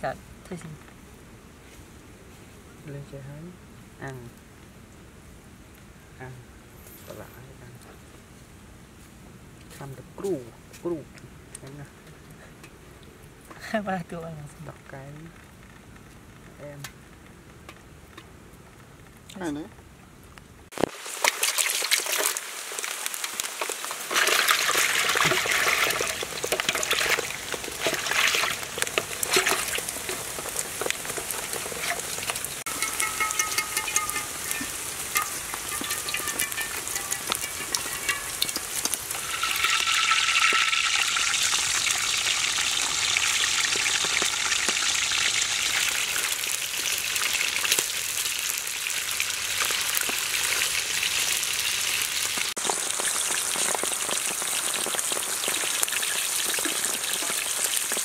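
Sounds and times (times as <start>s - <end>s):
hot oil sizzling and crackling: 14.2s - 58.0s.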